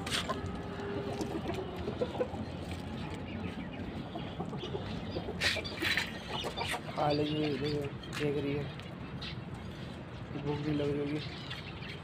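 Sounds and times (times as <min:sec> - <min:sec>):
chickens clucking: 0:00.0 - 0:08.6.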